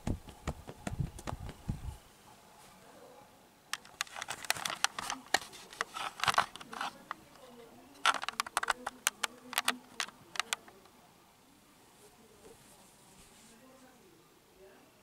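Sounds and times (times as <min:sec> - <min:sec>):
fabric rubbing on microphone: 0:00.0 - 0:02.0, 0:04.0 - 0:07.7, 0:12.0 - 0:14.0.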